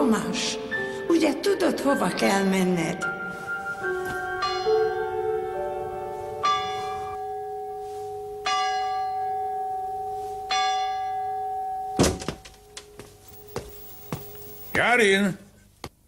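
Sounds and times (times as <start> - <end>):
bell ringing: 3.9 - 14.7.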